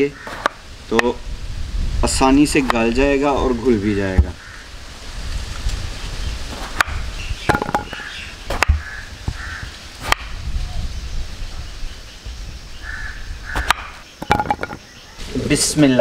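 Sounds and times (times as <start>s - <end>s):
bird cawing: 0.0s - 0.6s, 4.3s - 4.8s, 7.5s - 9.8s, 12.8s - 15.2s.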